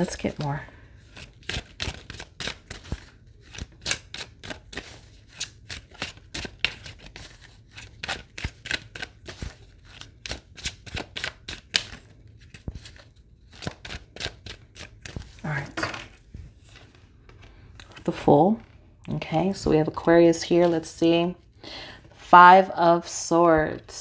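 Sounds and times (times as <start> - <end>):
cards being shuffled: 0.0 - 18.8.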